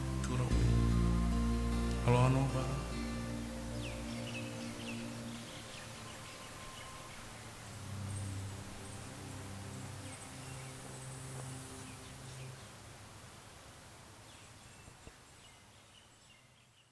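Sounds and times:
low held musical notes: 0.0s - 12.7s
steady outdoor hiss: 0.0s - 16.9s
faint bird chirps: 0.2s - 12.8s.

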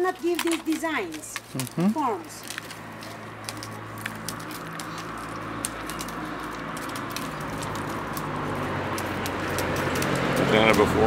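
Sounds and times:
reed stalks clicking and crackling: 0.0s - 11.0s.

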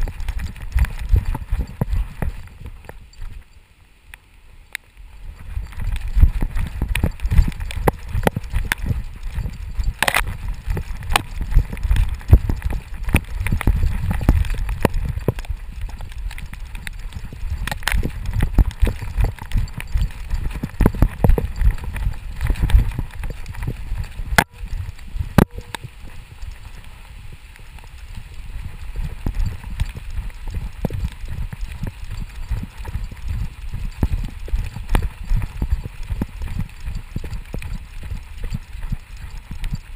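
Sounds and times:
dog paws thumping on ground: 0.0s - 3.5s, 5.3s - 27.0s, 27.8s - 39.9s
clicks and rustles: 0.0s - 39.9s.

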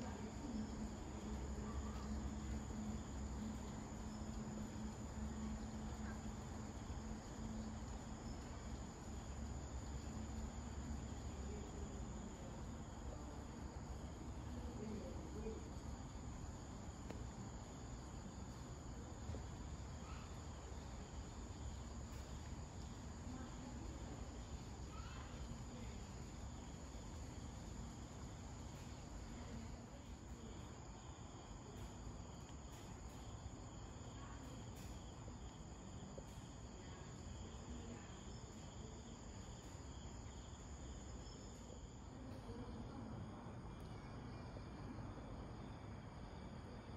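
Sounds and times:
crickets trilling: 0.0s - 46.9s.

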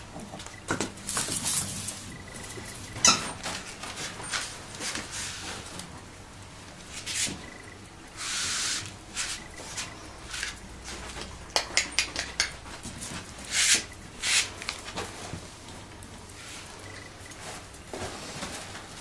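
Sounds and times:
claws clicking on tiles: 11.5s - 12.6s.

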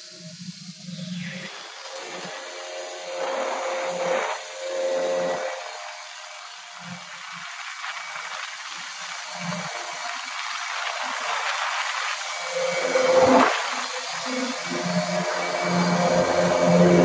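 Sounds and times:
small boat engine: 11.4s - 17.0s.

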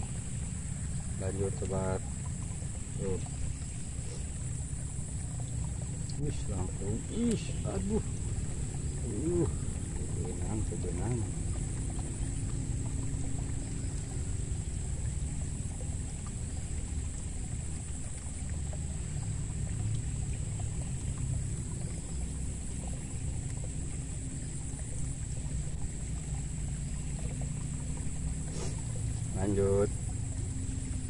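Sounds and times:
motorbike and traffic rumble: 0.0s - 16.8s.

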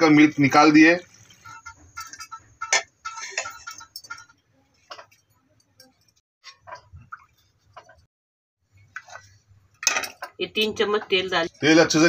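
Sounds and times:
cookware clicks and clinks: 1.4s - 8.1s, 9.8s - 10.4s.

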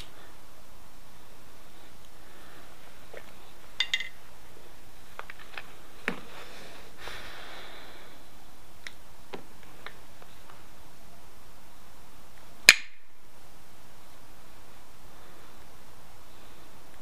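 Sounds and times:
stone tools clinking: 3.8s - 4.2s.

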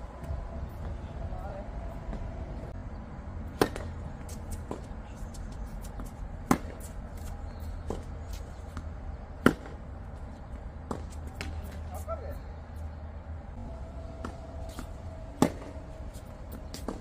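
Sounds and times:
steady low rumble: 0.0s - 17.0s
tennis ball bouncing: 3.4s - 9.9s, 10.5s - 11.8s, 14.2s - 17.0s
racket striking tennis ball: 3.5s - 5.0s, 5.8s - 9.8s, 14.2s - 17.0s.

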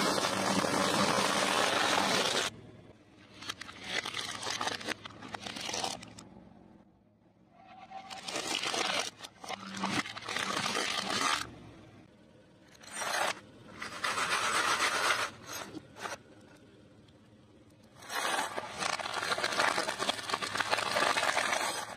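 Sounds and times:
plastic and glass crunching: 18.0s - 21.9s.

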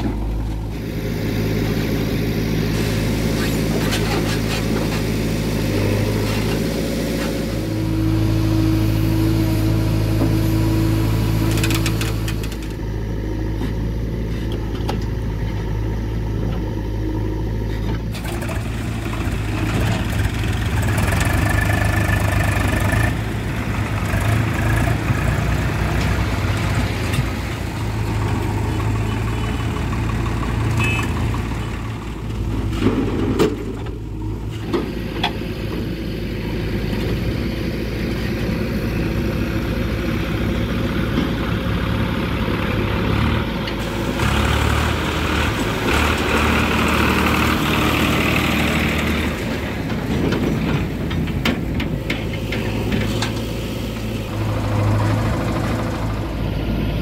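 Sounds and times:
diesel engines running: 0.0s - 57.0s.

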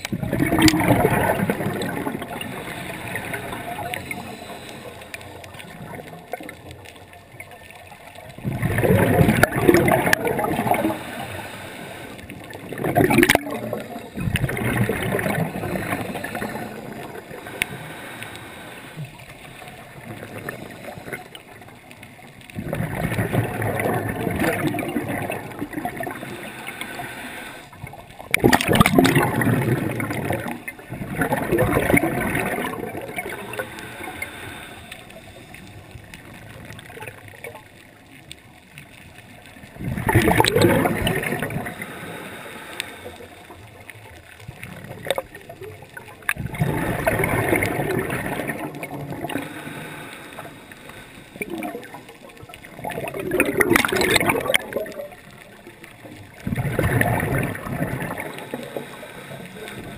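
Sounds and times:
gurgling exhaust bubbles: 0.0s - 4.6s, 8.3s - 11.3s, 12.2s - 17.7s, 22.5s - 27.0s, 27.8s - 34.2s, 39.7s - 41.9s, 44.4s - 49.6s, 51.4s - 59.0s
diver breathing through regulator: 2.2s - 5.7s, 10.6s - 12.5s, 13.7s - 21.4s, 25.5s - 27.8s, 32.2s - 35.8s, 41.4s - 43.6s, 49.2s - 51.6s, 57.6s - 59.9s.

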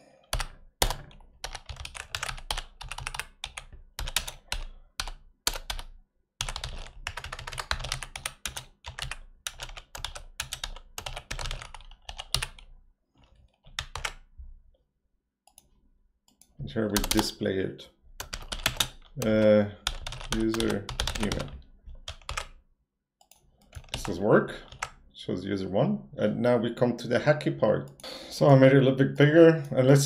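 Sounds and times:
computer keyboard typing: 0.2s - 14.3s, 16.3s - 17.4s, 18.2s - 22.6s, 23.2s - 25.0s.

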